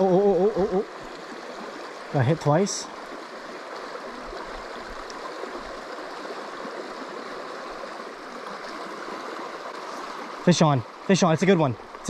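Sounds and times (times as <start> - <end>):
river water rushing over stones: 0.0 - 12.0.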